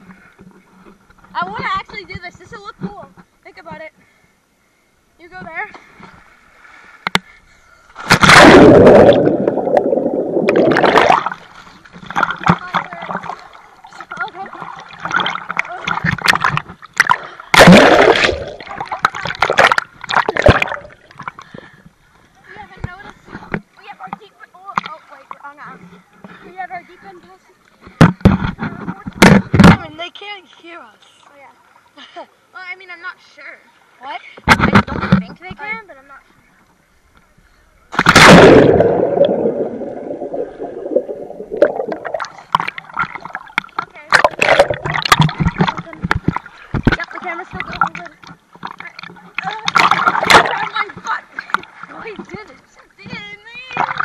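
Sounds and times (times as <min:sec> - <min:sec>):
loud splash into pool: 0:08.0 - 0:11.4, 0:17.0 - 0:21.0, 0:38.0 - 0:42.3
muffled water splashing and bubbling: 0:08.0 - 0:22.4, 0:37.9 - 0:52.5.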